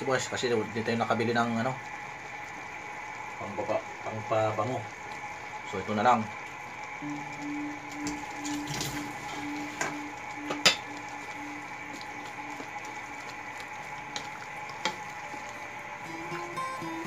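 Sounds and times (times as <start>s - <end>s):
broth simmering: 0.0s - 17.0s
spatula stirring soup in pan: 9.2s - 16.4s.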